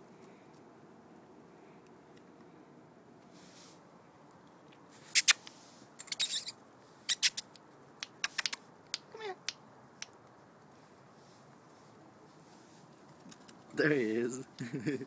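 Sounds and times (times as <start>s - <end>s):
tongue clicks and kissing smacks: 5.1s - 10.2s.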